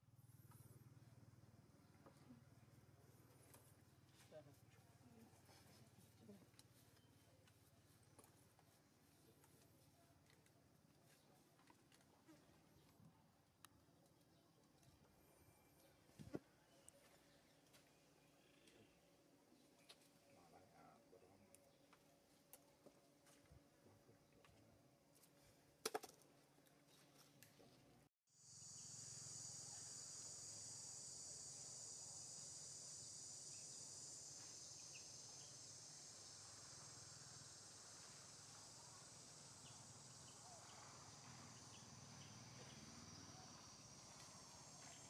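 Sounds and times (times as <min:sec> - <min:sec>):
insects buzzing: 0:28.4 - 0:45.0.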